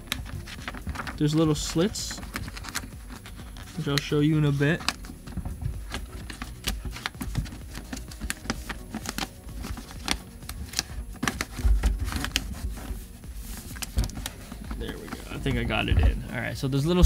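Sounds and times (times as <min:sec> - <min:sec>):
paper sheet rustling and clicking: 0:00.0 - 0:17.0
thumps on plastic: 0:04.3 - 0:16.3.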